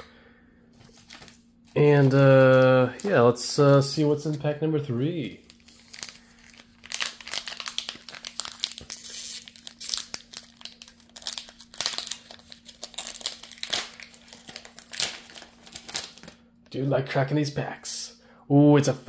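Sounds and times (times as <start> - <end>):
foil wrapper crinkling and tearing: 0.9 - 4.4, 5.3 - 16.4.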